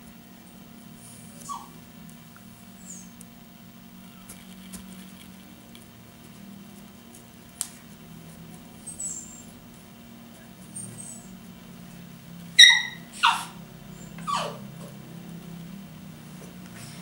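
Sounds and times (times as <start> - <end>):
steady low hum: 0.0 - 17.0
knife scratching melon rind: 4.2 - 6.9.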